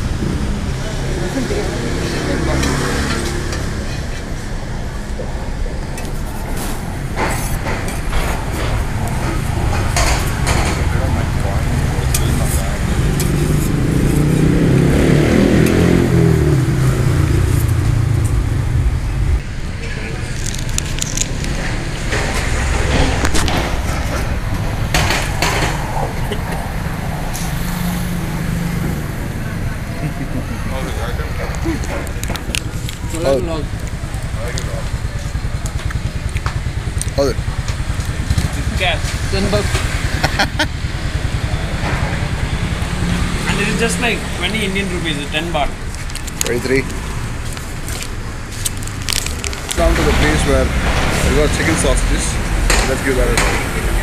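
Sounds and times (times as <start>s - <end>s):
low rumble of traffic: 0.0s - 54.0s
scattered clicks and clatters: 5.8s - 14.2s, 19.4s - 27.6s, 31.1s - 40.8s, 45.3s - 54.0s.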